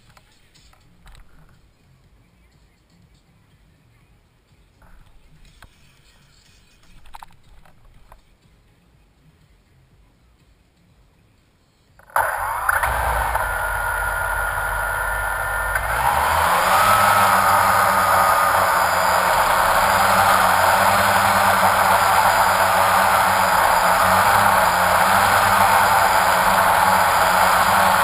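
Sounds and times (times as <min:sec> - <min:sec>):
drone motors whining: 0:12.0 - 0:28.0.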